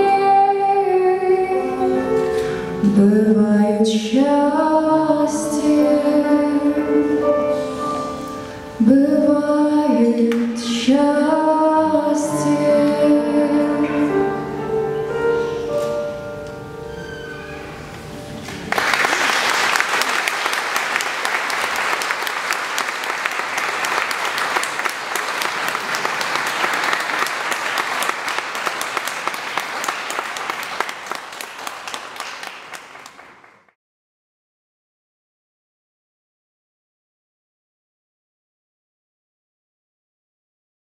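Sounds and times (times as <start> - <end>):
grand piano chords: 0.0 - 18.8
audience applause: 18.4 - 33.8.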